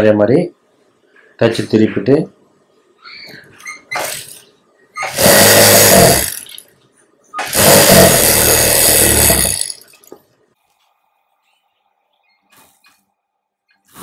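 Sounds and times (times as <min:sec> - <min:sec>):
sewing machine stitching: 0:03.9 - 0:04.4, 0:05.0 - 0:06.6, 0:07.4 - 0:10.0.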